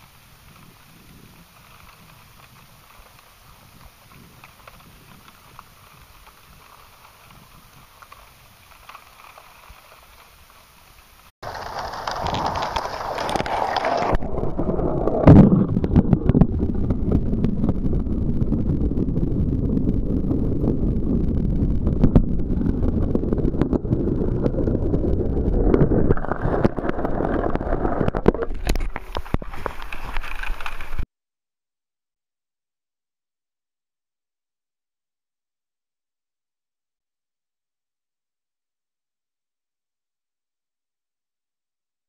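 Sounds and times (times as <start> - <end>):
muffled underwater rumbling: 11.4 - 31.0.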